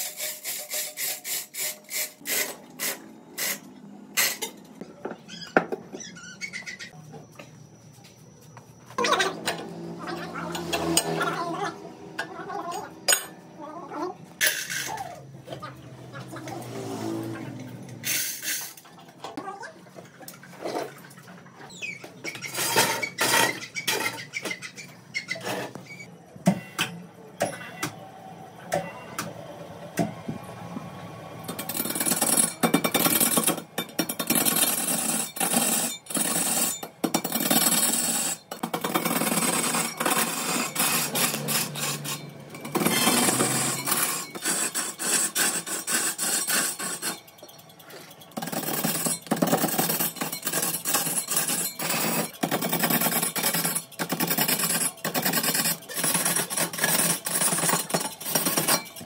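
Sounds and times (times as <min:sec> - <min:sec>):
tool scraping wood: 0:34.2 - 0:47.2.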